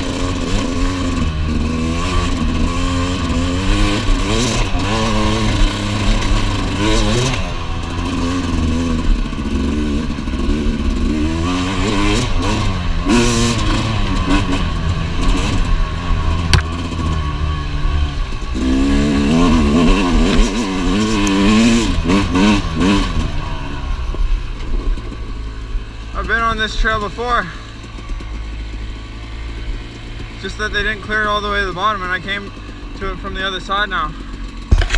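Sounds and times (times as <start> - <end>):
two-stroke motorbike engine revving: 0.0 - 34.9
bike rattling on rough ground: 34.4 - 34.9.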